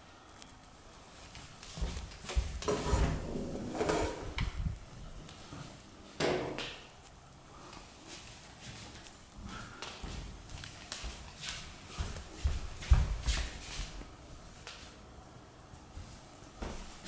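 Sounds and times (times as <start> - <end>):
footsteps on wooden floor: 1.4 - 5.8, 8.6 - 14.1, 16.0 - 17.0.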